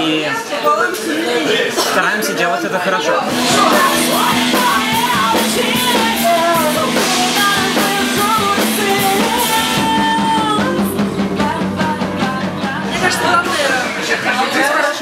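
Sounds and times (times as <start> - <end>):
guitar: 3.1 - 15.0
bass: 3.2 - 15.0
drums: 3.2 - 15.0
woman singing into microphone: 3.3 - 13.9.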